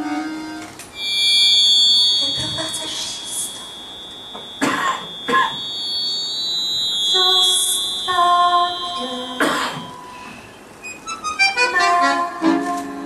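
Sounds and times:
accordion playing softly: 0.0 - 0.8, 11.1 - 13.0
coughs: 4.6 - 5.6, 9.4 - 9.9.

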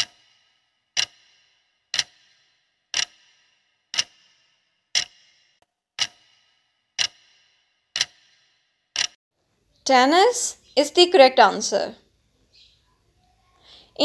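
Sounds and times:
clock ticking: 0.0 - 9.2.

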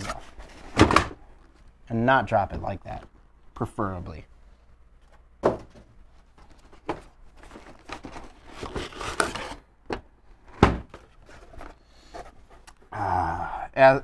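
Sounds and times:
cardboard and plastic rustling: 0.0 - 1.8, 5.0 - 12.8
dull cardboard knocks: 5.4 - 5.8.

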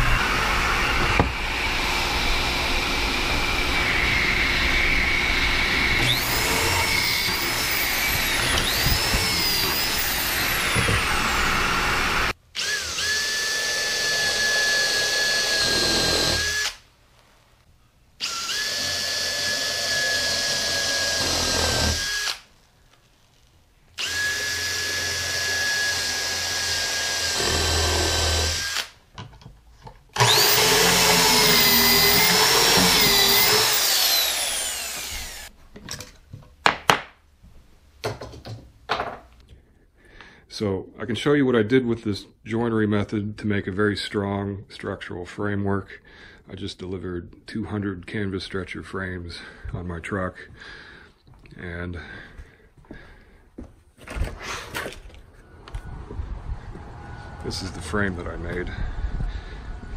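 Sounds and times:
power drill boring into wood: 0.0 - 16.8, 18.2 - 22.5, 24.0 - 29.0, 30.2 - 35.5.

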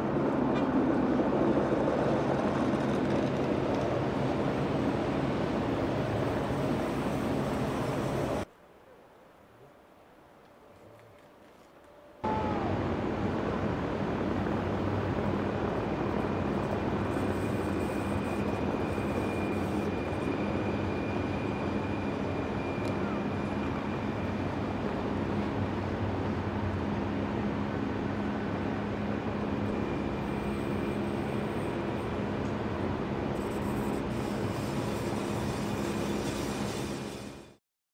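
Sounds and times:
train wheels rumbling on track: 0.2 - 8.4, 28.3 - 37.6
faint high whine: 11.8 - 37.6.

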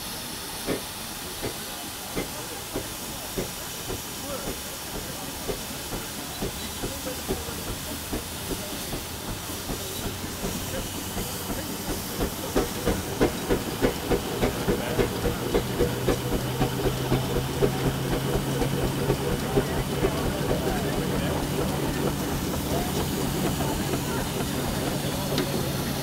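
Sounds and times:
steam engine exhaust beats: 0.0 - 26.0.

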